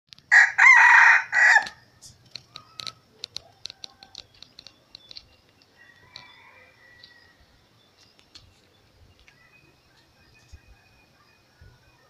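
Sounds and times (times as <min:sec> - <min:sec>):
rooster crowing: 0:00.3 - 0:01.8, 0:05.8 - 0:07.5
light sharp clicks and taps: 0:01.6 - 0:06.3.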